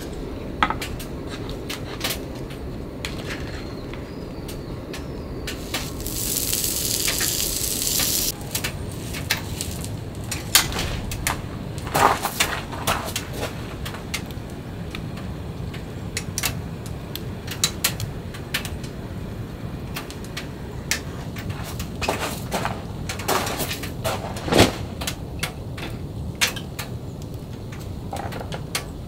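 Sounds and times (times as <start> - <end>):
wood stove fire crackling: 3.9 - 24.1, 25.0 - 29.0
steady hiss: 5.3 - 24.0
sharp pops: 5.5 - 11.3.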